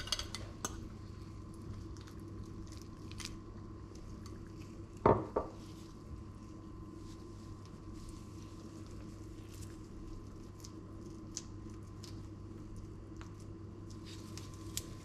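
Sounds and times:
bowl knocking on countertop: 5.1 - 5.6.

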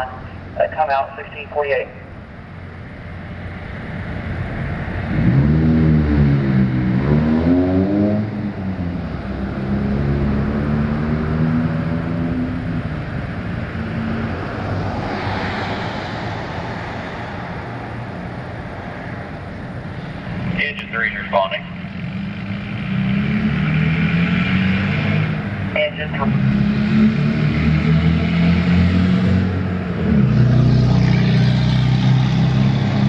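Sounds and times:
rush of noise: 0.0 - 33.0
vehicle engine revving: 4.6 - 18.1, 20.0 - 33.0.

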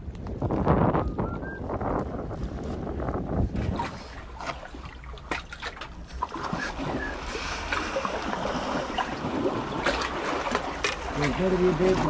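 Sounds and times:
small splashes and clicks: 3.6 - 12.0
small waves lapping on rocks: 3.6 - 12.0.

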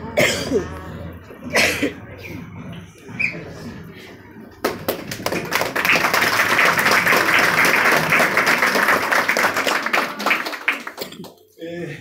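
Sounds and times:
audience applauding: 4.6 - 11.5.

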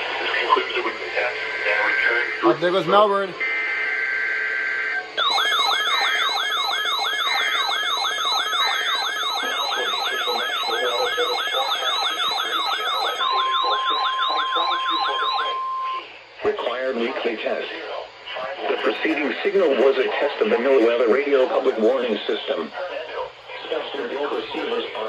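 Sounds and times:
electronic alert siren: 3.5 - 16.0
steady alert tone: 5.2 - 15.6
high warbling data tones: 5.2 - 16.0.

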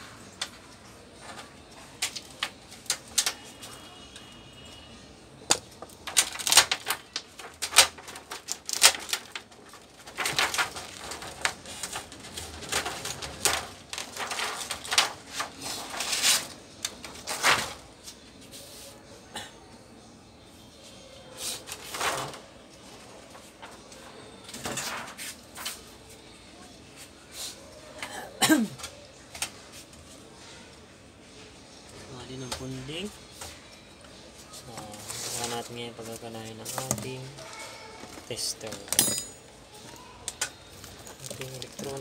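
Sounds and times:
plastic sheet crinkling: 5.8 - 17.9, 39.9 - 42.0.

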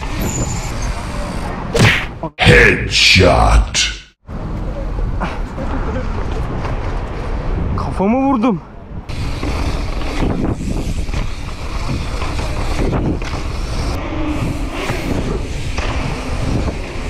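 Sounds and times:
bike rumbling and rattling: 0.0 - 1.7, 9.0 - 17.0
wind buffeting microphone: 8.8 - 17.0.

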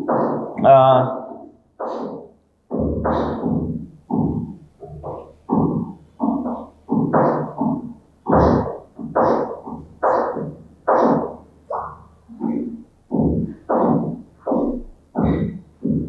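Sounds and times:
man reading aloud: 0.6 - 1.3.

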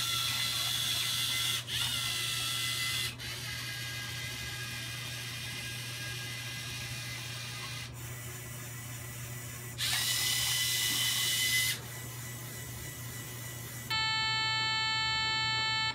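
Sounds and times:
robot motors whirring: 0.0 - 13.9
electronic beep tone: 13.9 - 15.9.

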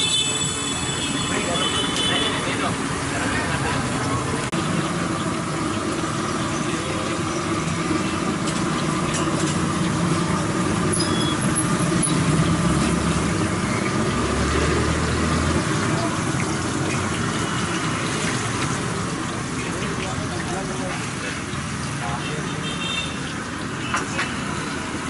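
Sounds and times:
dough sizzling in hot oil: 0.0 - 25.0
street traffic: 0.0 - 25.0
low engine hum passing: 2.8 - 21.2.

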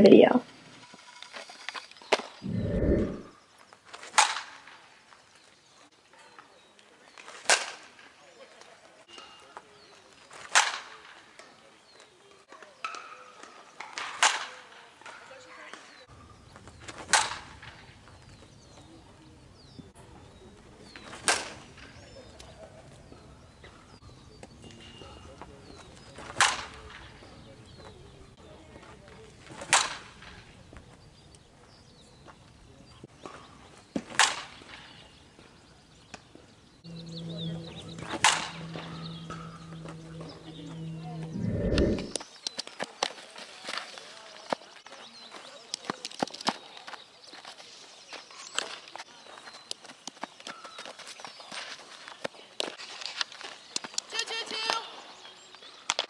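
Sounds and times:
low steady hum: 2.4 - 3.3, 36.8 - 42.2.

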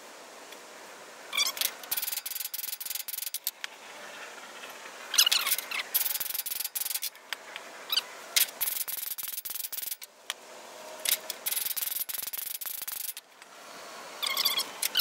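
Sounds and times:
scraping and squeaking: 1.4 - 7.2, 14.2 - 15.0.

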